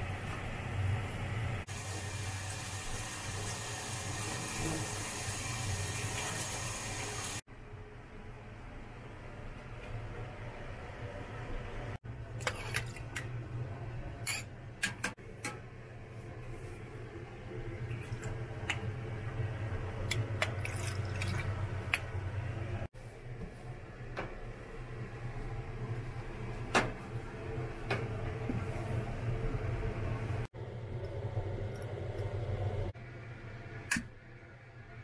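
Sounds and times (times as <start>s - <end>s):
small clicks and splashes: 20.0s - 22.1s.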